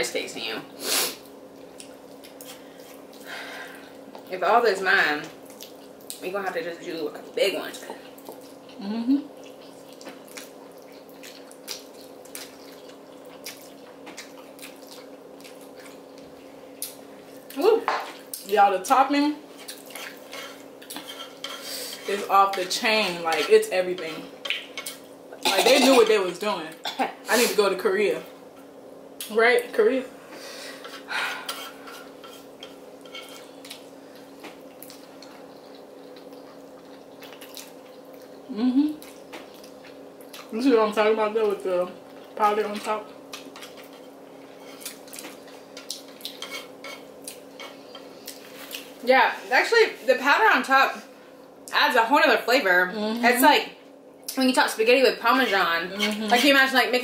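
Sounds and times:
faint steady hum: 0:00.0 - 0:57.0
people chewing and slurping noodles: 0:07.8 - 0:17.5, 0:30.3 - 0:40.5
people slurping and chewing noodles: 0:30.7 - 0:40.5.

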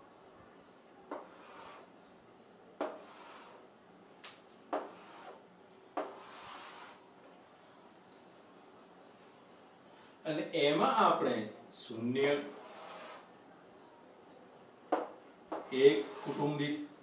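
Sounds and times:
chalk tapping on chalkboard: 0:01.1 - 0:01.8, 0:02.8 - 0:03.6, 0:04.7 - 0:05.4, 0:06.0 - 0:07.0, 0:14.9 - 0:16.4
chalk scraping on chalkboard: 0:01.1 - 0:01.9, 0:02.8 - 0:03.6, 0:04.7 - 0:05.4, 0:06.0 - 0:07.0, 0:12.4 - 0:13.3, 0:15.0 - 0:16.8.

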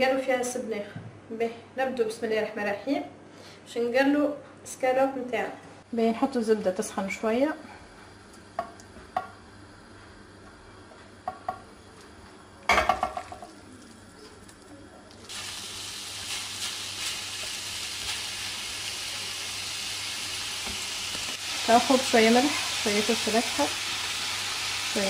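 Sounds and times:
meat sizzling in a frying pan: 0:15.2 - 0:25.0
spatula stirring in pan: 0:16.2 - 0:18.6.

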